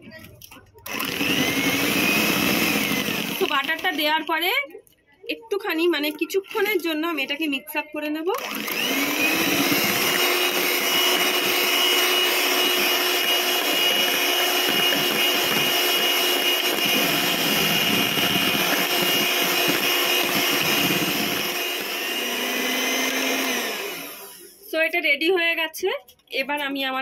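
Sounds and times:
electric hand mixer whisking batter: 0:00.8 - 0:04.0, 0:08.3 - 0:24.6.

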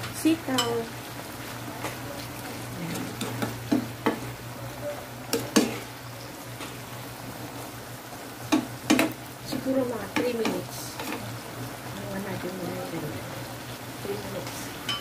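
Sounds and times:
soft steady sizzle: 0:00.0 - 0:15.0
spatula knocking and scraping pan: 0:02.9 - 0:04.3, 0:05.3 - 0:05.9, 0:08.5 - 0:11.2.

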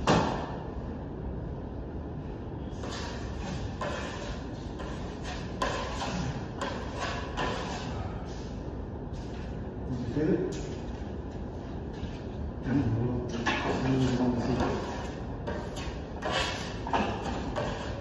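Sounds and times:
trowel scraping plaster: 0:13.6 - 0:18.0.

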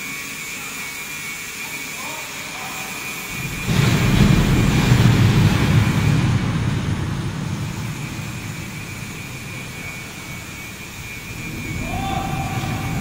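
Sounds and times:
loud rumbling machine: 0:03.2 - 0:13.0.

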